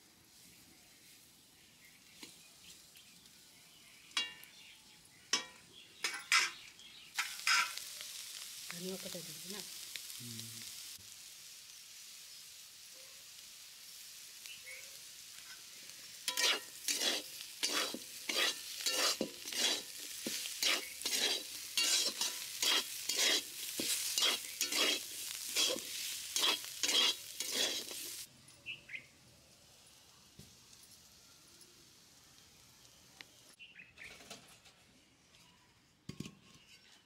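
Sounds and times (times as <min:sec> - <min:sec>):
metal spatula scraping a pan: 0:05.3 - 0:08.0, 0:15.4 - 0:28.3.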